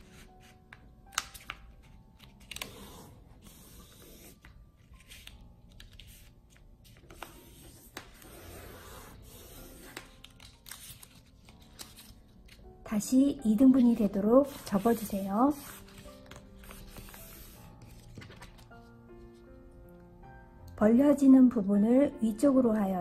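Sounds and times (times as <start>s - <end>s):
paper being folded and creased: 0.0s - 12.6s, 13.9s - 18.9s.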